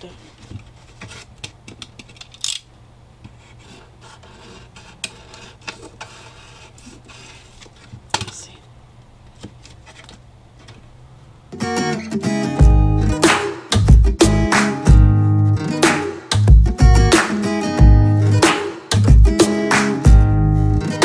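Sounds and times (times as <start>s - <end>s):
craft knife scraping cardboard: 0.3s - 1.4s, 3.3s - 8.0s.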